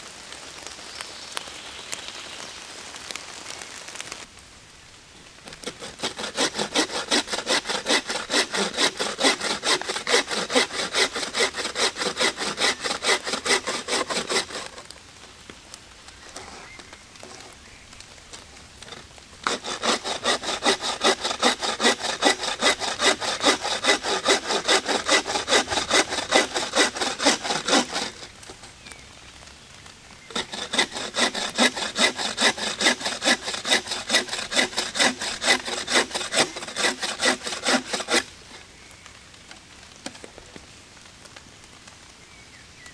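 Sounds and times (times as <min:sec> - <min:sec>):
saw cutting through a branch: 0:05.5 - 0:14.9, 0:18.8 - 0:28.7, 0:30.3 - 0:38.5.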